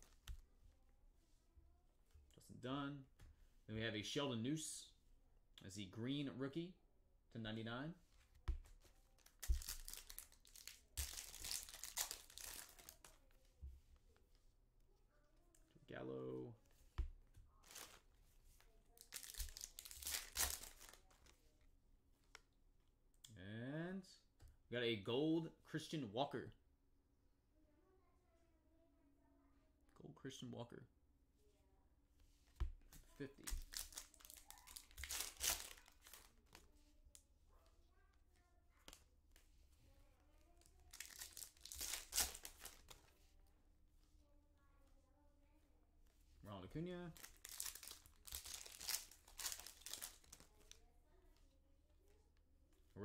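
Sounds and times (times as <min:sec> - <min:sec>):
foil wrapper crinkling: 0:09.2 - 0:13.2, 0:19.0 - 0:21.0, 0:33.5 - 0:36.4, 0:40.9 - 0:43.0, 0:47.2 - 0:50.7
foil wrapper tearing: 0:09.4 - 0:13.0, 0:19.1 - 0:21.0, 0:33.5 - 0:36.2, 0:40.9 - 0:42.9, 0:47.2 - 0:50.5.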